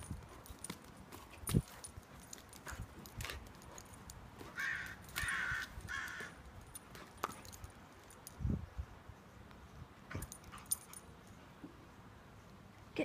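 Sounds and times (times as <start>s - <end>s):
claws clicking on stone tiles: 2.3s - 8.4s
harsh caw-like calls: 4.6s - 6.4s.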